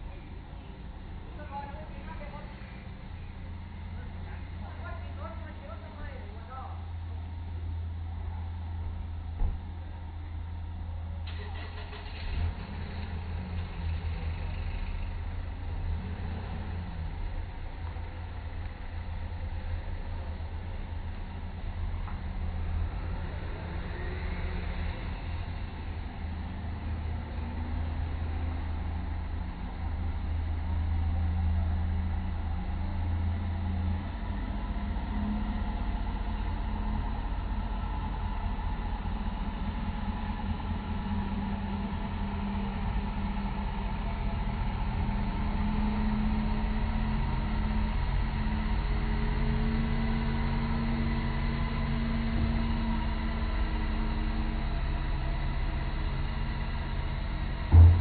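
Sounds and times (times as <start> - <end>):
diesel truck engine: 0.0 - 58.0.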